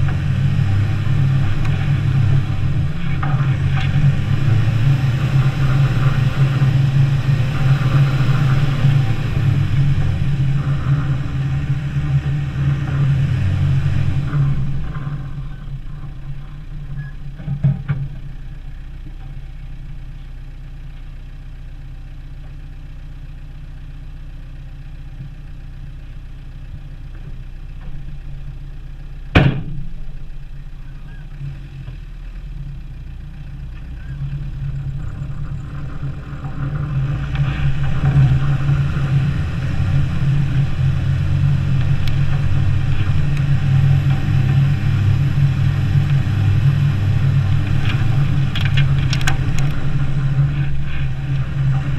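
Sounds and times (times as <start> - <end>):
engine revving: 0.0 - 19.0, 29.3 - 51.9
engine idling: 0.0 - 51.9
sharp knock: 29.3 - 29.9.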